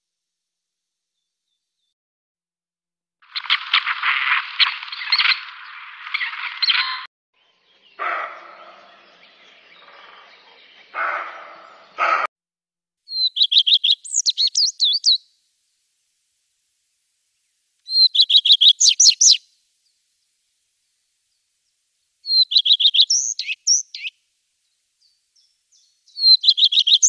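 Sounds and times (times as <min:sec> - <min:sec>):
bird warbling chirps: 0:03.3 - 0:12.2, 0:13.1 - 0:15.2, 0:17.9 - 0:19.4, 0:22.2 - 0:24.1, 0:25.4 - 0:27.0
deer barking: 0:08.0 - 0:08.9, 0:10.9 - 0:12.3
partridge rasping calls: 0:08.0 - 0:09.0, 0:09.7 - 0:12.3, 0:22.3 - 0:24.1.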